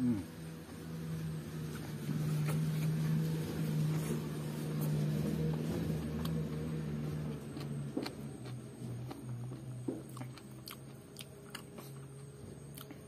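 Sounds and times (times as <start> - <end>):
low motor drone: 0.0 - 13.0
person chewing food: 1.6 - 13.0.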